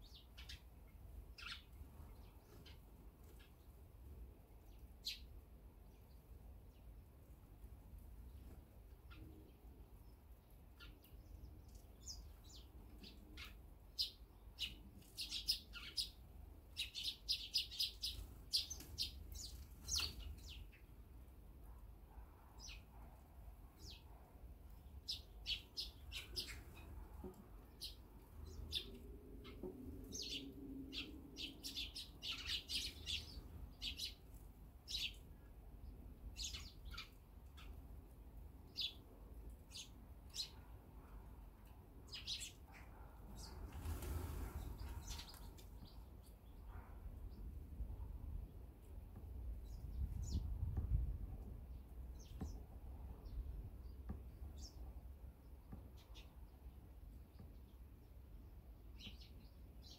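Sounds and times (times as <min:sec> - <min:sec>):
sparrows chirping: 0:00.0 - 0:07.0, 0:08.0 - 0:22.0, 0:22.6 - 0:51.0, 0:51.6 - 0:59.9.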